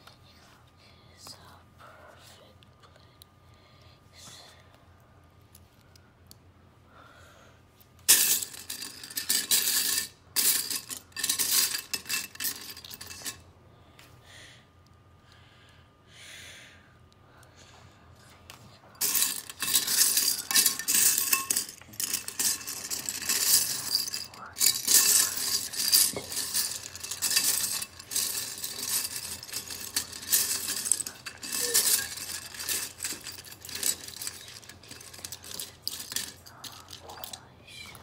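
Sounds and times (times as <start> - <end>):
plastic bricks rattling in a bowl: 8.1 - 13.4, 19.0 - 37.4.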